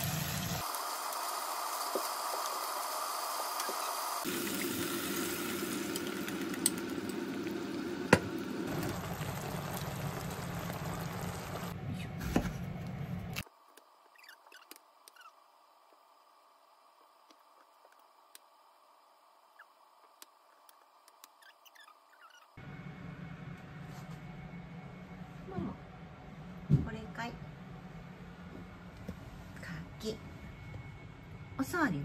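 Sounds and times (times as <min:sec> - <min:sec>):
meat sizzling in a frying pan: 0:00.0 - 0:11.8.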